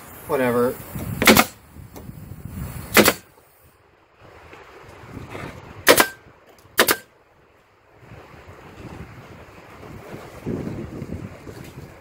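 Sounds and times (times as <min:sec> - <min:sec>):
pneumatic nail gun shots: 0:01.2 - 0:01.6, 0:02.9 - 0:03.3, 0:05.9 - 0:06.2, 0:06.8 - 0:07.1.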